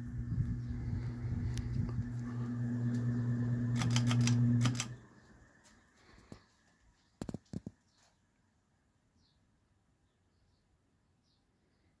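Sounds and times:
ceiling fan motor humming: 0.0s - 6.2s
sharp clicks: 3.7s - 5.0s.

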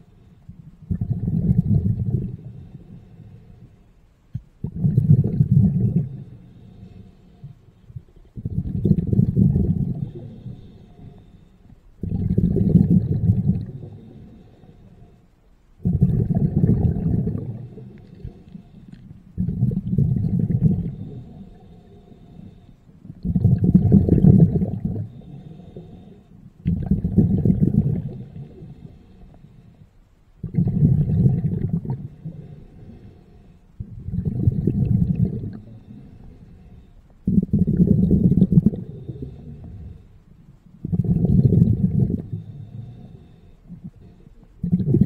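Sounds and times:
underwater breath bubbles: 0.0s - 15.2s, 15.8s - 45.0s
diver inhaling: 5.9s - 15.3s, 15.9s - 23.1s, 24.3s - 26.6s, 31.3s - 40.3s, 41.8s - 44.6s.

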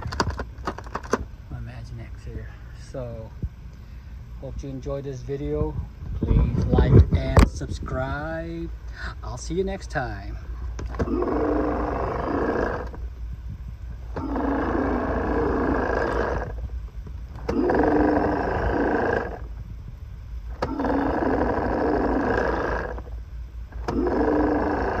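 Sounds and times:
electronic toy dinosaur roar: 10.9s - 13.0s, 14.1s - 16.6s, 17.4s - 19.5s, 20.6s - 23.1s, 23.7s - 25.0s.

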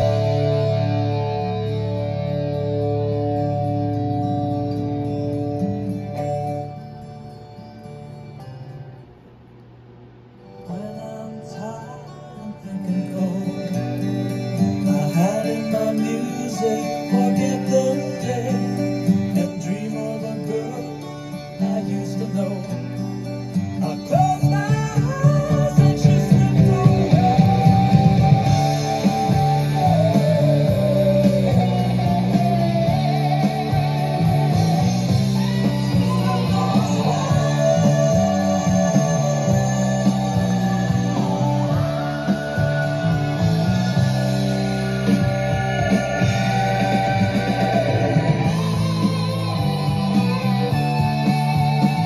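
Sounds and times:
rock music through loudspeakers: 0.0s - 8.9s, 10.4s - 52.0s
guitar note sliding in pitch: 24.5s - 52.0s.

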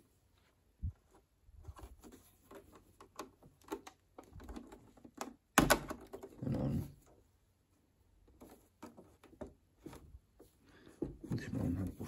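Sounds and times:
light clicks and rubbing: 0.3s - 5.4s.

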